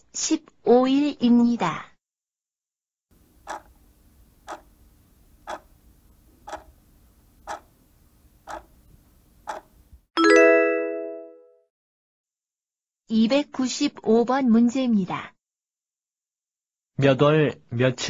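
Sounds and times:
clock ticking: 3.4 - 3.8, 4.4 - 4.7, 5.4 - 5.7, 6.4 - 6.8, 7.4 - 7.7, 8.4 - 8.8, 9.4 - 9.7
bright bell-like chime: 10.2 - 11.6.

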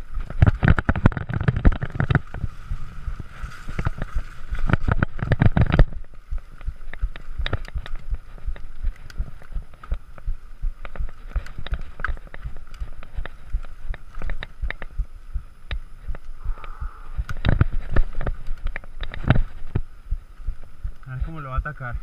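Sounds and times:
bike knocking and rattling: 0.0 - 16.4, 17.2 - 22.0
faint steady hum: 0.0 - 22.0.

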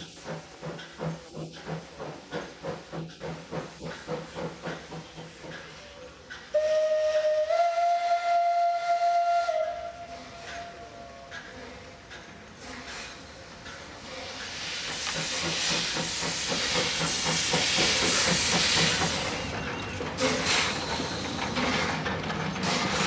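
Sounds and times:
steam puffing and hissing: 0.0 - 23.0
steam locomotive whistle: 6.5 - 11.3.

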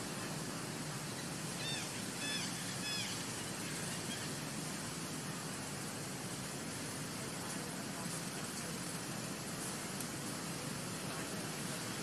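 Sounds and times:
steady hiss: 0.0 - 12.0
baby monkey coo calls: 1.6 - 4.3.

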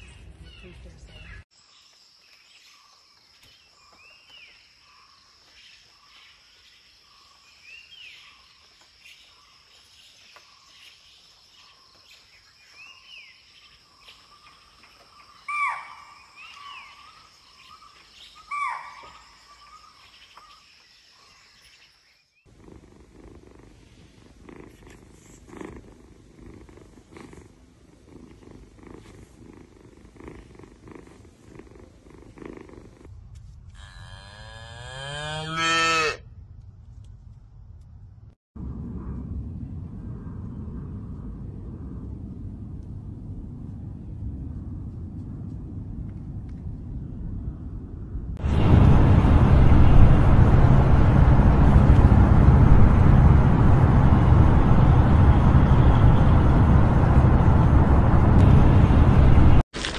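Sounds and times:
birds chirping: 0.0 - 22.5
cat purring: 22.5 - 33.1.

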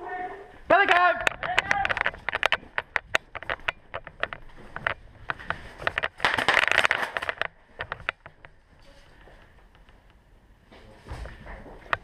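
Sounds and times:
footsteps: 0.0 - 10.1, 10.7 - 12.0
gear clicking and rustling: 1.2 - 8.6.

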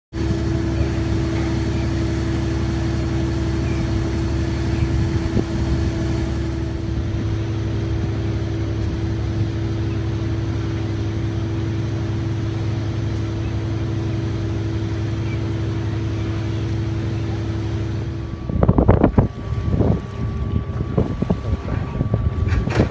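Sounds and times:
diesel boat engine droning: 0.1 - 22.9.

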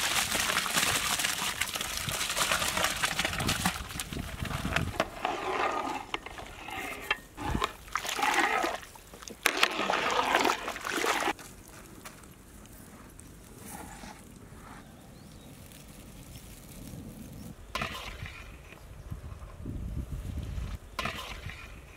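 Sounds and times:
ladle stirring water: 0.0 - 11.4.

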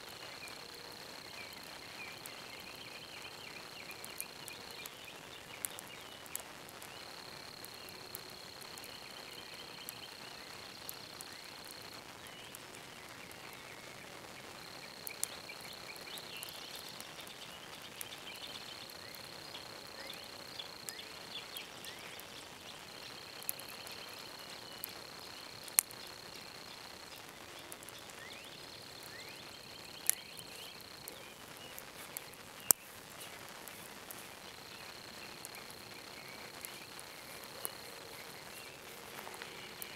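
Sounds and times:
wood fire popping and crackling: 0.0 - 39.9.

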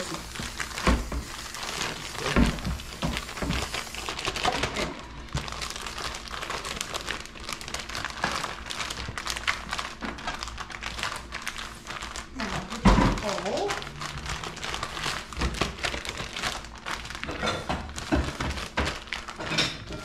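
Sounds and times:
plastic bag crinkling: 0.0 - 20.0.

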